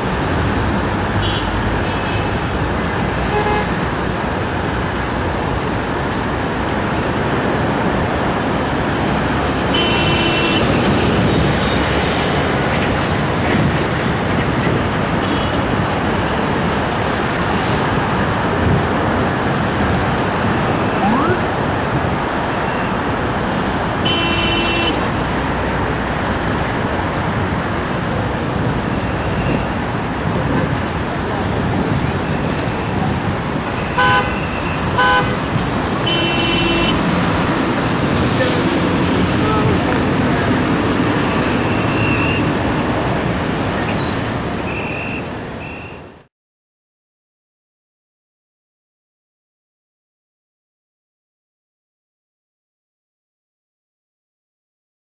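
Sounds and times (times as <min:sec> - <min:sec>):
city street traffic: 0:00.0 - 0:46.3
car horn honks: 0:09.7 - 0:10.8, 0:24.0 - 0:25.1, 0:34.0 - 0:35.4, 0:36.0 - 0:37.0.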